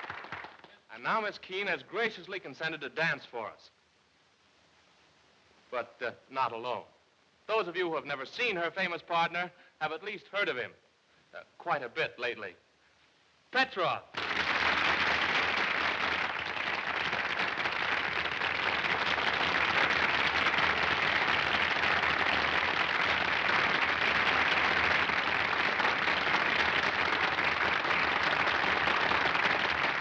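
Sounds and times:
audience applauding: 0:00.0 - 0:00.8, 0:14.1 - 0:30.0.

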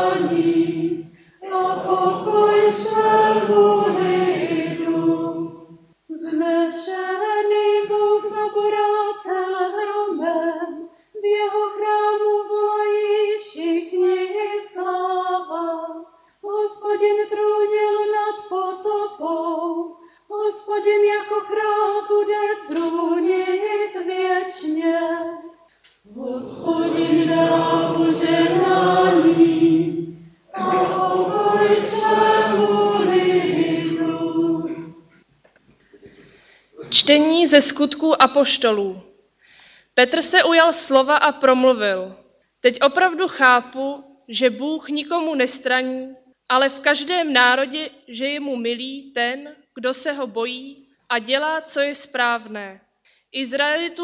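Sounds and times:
congregation singing: 0:00.0 - 0:05.9, 0:20.9 - 0:25.3, 0:26.1 - 0:35.2
solo voice singing: 0:22.7 - 0:23.6, 0:26.1 - 0:35.0.

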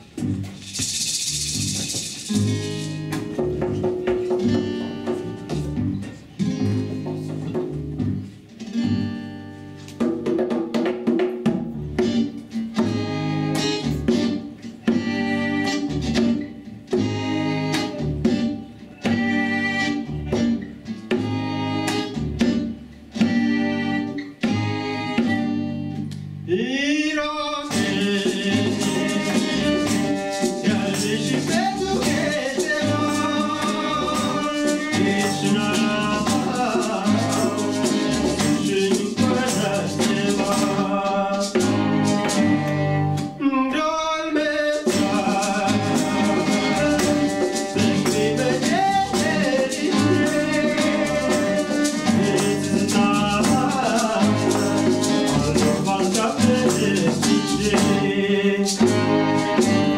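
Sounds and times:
double bass: 0:00.0 - 0:09.9, 0:11.6 - 0:26.6, 0:27.7 - 0:43.4, 0:44.9 - 0:59.9
hand drum: 0:00.0 - 0:25.7, 0:27.7 - 0:43.4, 0:44.7 - 0:59.9
acoustic guitar: 0:00.0 - 0:59.9
violins: 0:12.8 - 0:16.1, 0:17.0 - 0:18.3, 0:21.2 - 0:22.3, 0:23.2 - 0:25.8, 0:41.5 - 0:43.3, 0:58.8 - 0:59.9.

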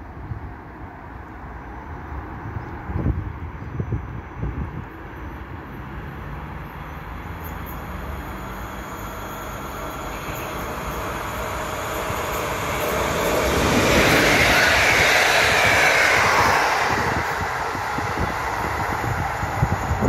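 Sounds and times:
train rolling on rails: 0:00.0 - 0:20.0.

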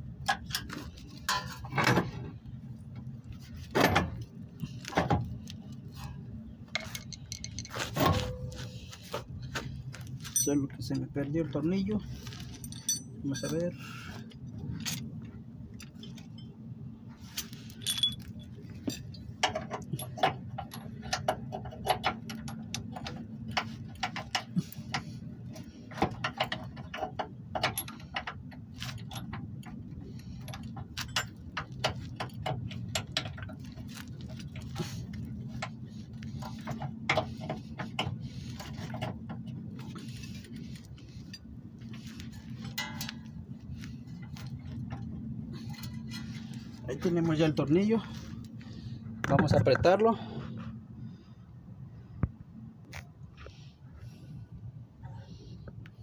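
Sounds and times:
steady low hum: 0:00.0 - 0:56.0
metallic clicks of bolt handling: 0:06.7 - 0:08.7.

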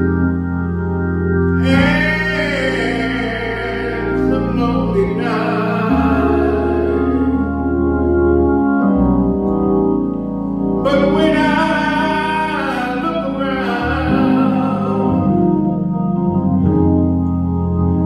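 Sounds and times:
organ gospel chords: 0:00.0 - 0:18.0
person singing: 0:01.6 - 0:07.7, 0:10.8 - 0:15.6.

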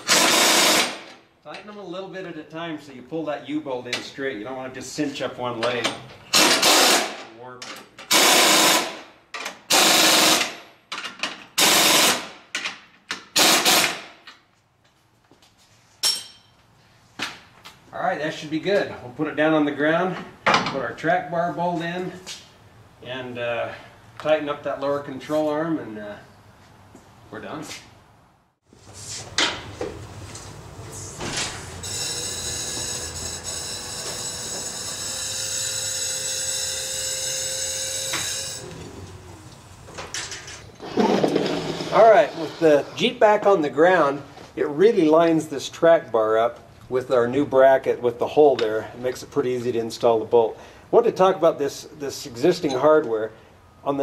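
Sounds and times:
air impact wrench rattling: 0:00.0 - 0:01.1, 0:06.3 - 0:07.2, 0:13.3 - 0:14.0
hydraulic car lift hissing whine: 0:30.8 - 0:40.4.

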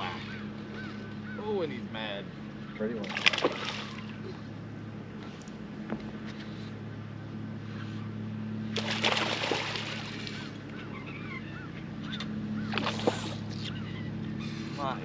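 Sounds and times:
steady low hum: 0:00.0 - 0:15.0
fish splashing at water surface: 0:03.0 - 0:04.2, 0:08.7 - 0:10.6, 0:12.6 - 0:13.4.

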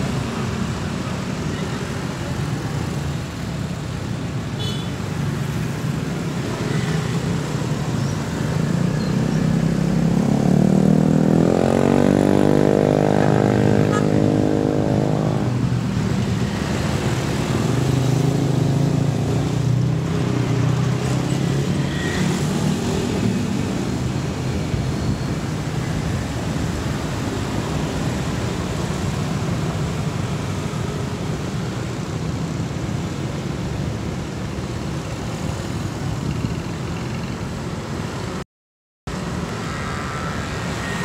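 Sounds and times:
motor scooters passing: 0:05.4 - 0:31.9, 0:39.1 - 0:41.0.

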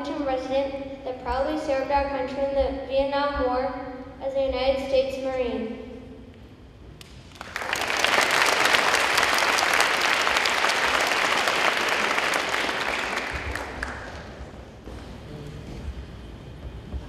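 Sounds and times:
audience applauding: 0:07.3 - 0:14.8.

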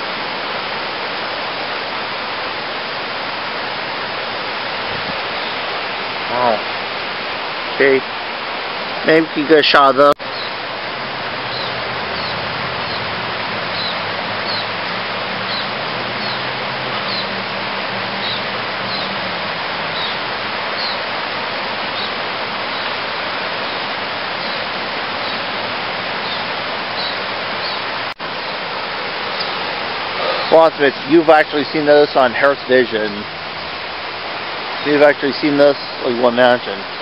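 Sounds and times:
creek rushing: 0:00.0 - 0:37.0
bird chirping: 0:10.2 - 0:10.6, 0:11.5 - 0:13.1, 0:13.7 - 0:17.4, 0:18.2 - 0:19.2, 0:19.9 - 0:20.2, 0:20.8 - 0:21.0, 0:26.2 - 0:28.5, 0:29.3 - 0:29.6.

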